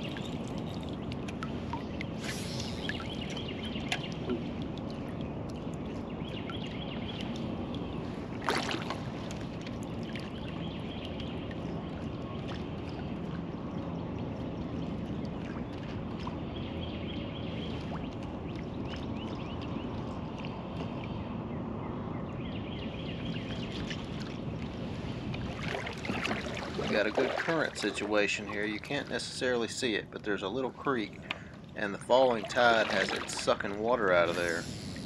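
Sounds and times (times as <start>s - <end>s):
water washing around kayak: 7.4s - 13.6s, 23.6s - 29.2s, 31.8s - 35.0s.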